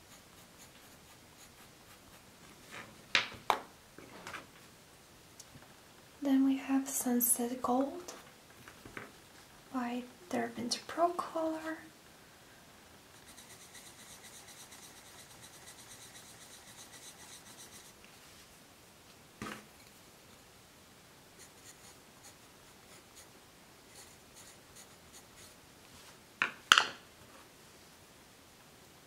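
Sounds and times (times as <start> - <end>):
pencil scribbling on paper: 0.0 - 2.3, 13.2 - 18.0, 21.4 - 23.3, 23.9 - 25.6.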